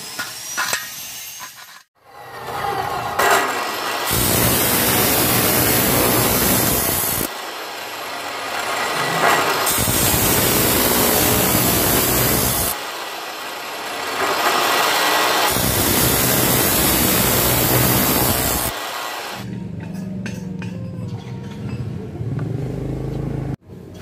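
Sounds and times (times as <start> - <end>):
power tool cutting: 3.4 - 19.4.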